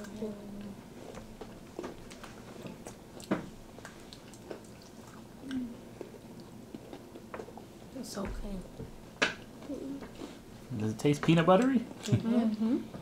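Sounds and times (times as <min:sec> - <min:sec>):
children chewing candy bar: 0:00.0 - 0:07.8.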